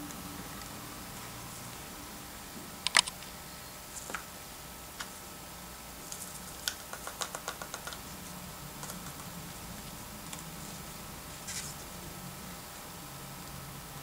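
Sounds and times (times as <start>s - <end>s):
low steady hum: 0.0s - 14.0s
paper rustle: 11.4s - 11.9s.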